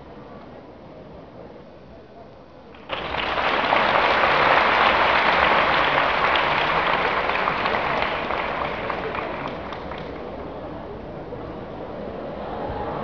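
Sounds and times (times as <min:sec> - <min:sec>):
audience applauding: 0:02.8 - 0:10.5.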